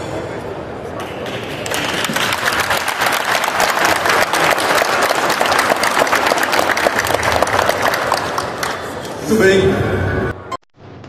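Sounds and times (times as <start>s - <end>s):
audience applause: 1.2s - 9.2s.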